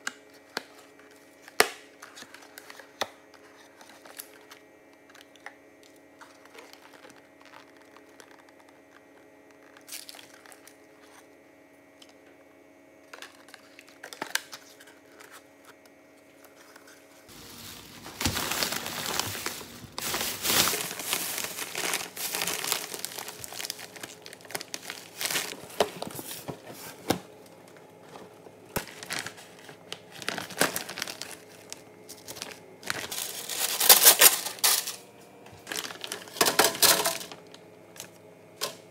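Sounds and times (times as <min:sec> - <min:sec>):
faint steady hum: 0:00.0 - 0:38.9
plastic snack bag crackling: 0:03.5 - 0:11.2, 0:17.3 - 0:26.4, 0:28.7 - 0:35.0, 0:35.6 - 0:37.5
plastic shopping bag rustling: 0:06.2 - 0:11.2, 0:16.6 - 0:27.1, 0:28.8 - 0:35.0, 0:35.6 - 0:37.5.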